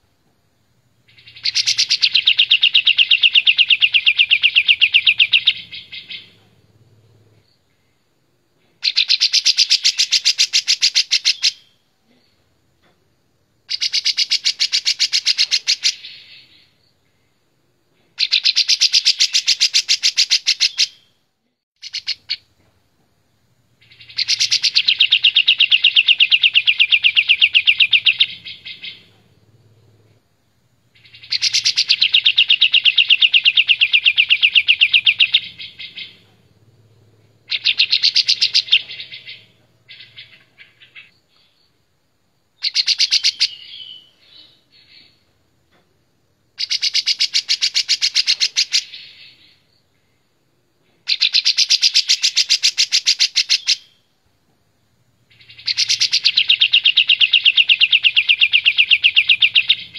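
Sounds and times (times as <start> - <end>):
bulbul singing trilled phrases: 1.0 - 6.6, 13.7 - 16.8, 21.8 - 22.4, 23.8 - 29.2, 30.9 - 36.4, 37.4 - 41.1, 42.6 - 45.1, 46.6 - 49.7, 51.1 - 54.1, 55.3 - 59.9.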